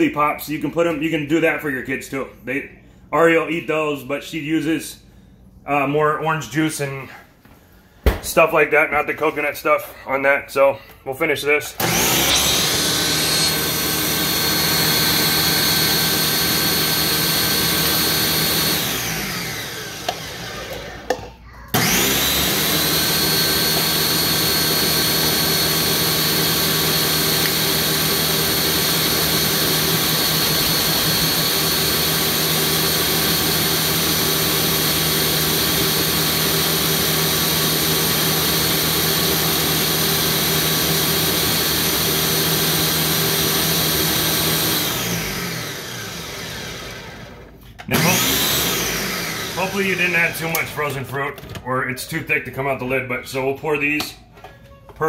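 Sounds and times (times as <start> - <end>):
blender clicks: 11.8 - 46.4
blender motor running: 11.8 - 50.8.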